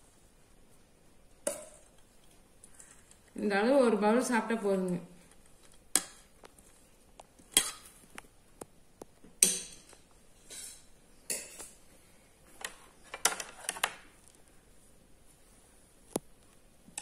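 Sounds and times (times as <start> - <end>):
spoons clinking on ceramic bowls: 9.4 - 11.8.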